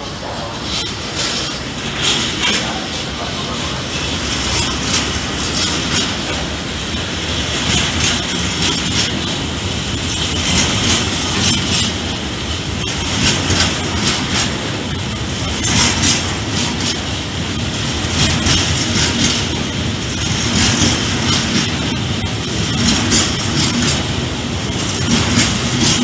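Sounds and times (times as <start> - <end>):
freight train rolling past: 0.0 - 26.0
wheel clicks on rail: 0.7 - 26.0.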